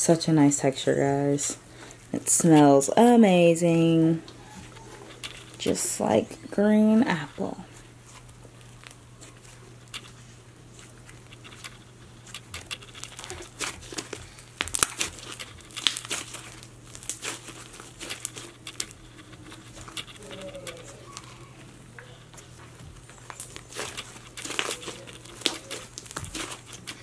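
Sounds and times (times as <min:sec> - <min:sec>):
slime crackling and popping: 0:08.2 - 0:21.7, 0:22.4 - 0:27.0.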